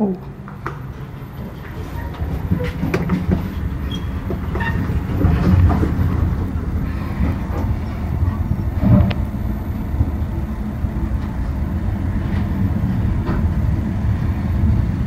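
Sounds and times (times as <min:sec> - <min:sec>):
elevator car rattles and clicks: 0:00.0 - 0:15.0
elevator low rumble: 0:00.0 - 0:15.0.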